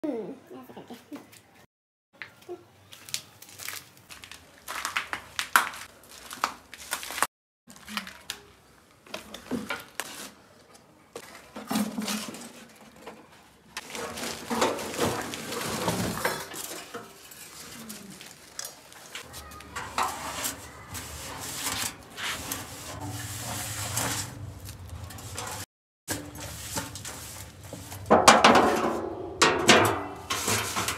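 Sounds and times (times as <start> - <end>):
junk rustling: 11.4 - 30.9
metal clanks and knocks: 13.8 - 17.3, 19.7 - 27.2, 27.8 - 30.9.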